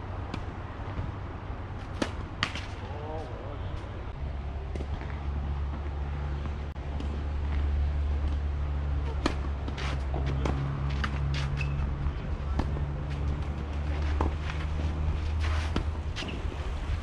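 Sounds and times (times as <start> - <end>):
tennis racket hitting ball: 1.8 - 3.0, 6.4 - 11.9.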